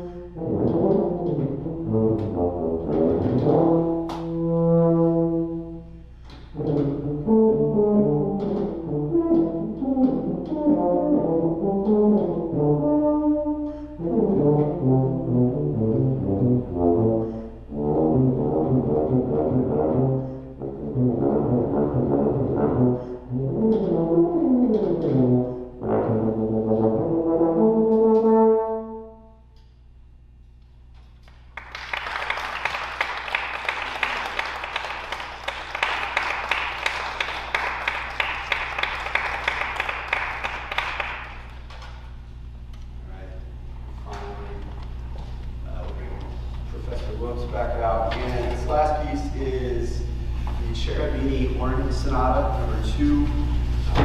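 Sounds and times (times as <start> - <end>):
tuba playing: 0.0 - 29.6, 47.2 - 54.0
audience applauding: 31.3 - 41.9.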